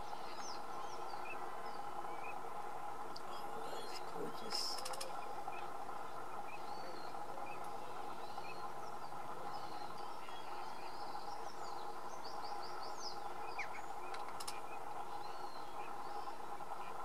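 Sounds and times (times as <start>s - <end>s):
background hiss and hum: 0.0s - 17.0s
small birds chirping: 0.0s - 17.0s
faint clicks: 4.5s - 5.3s, 14.1s - 14.6s.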